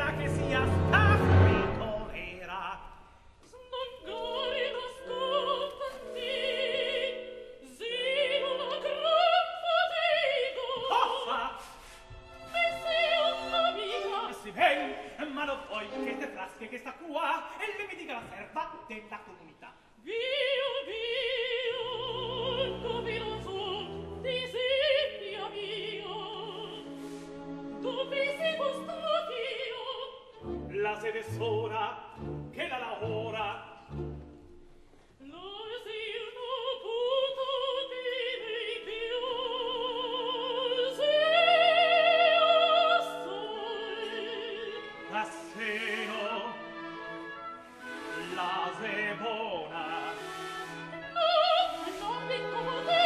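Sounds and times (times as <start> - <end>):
operatic high voice singing: 0.0 - 2.9, 3.6 - 11.7, 27.8 - 34.2
orchestra strings: 0.0 - 53.0.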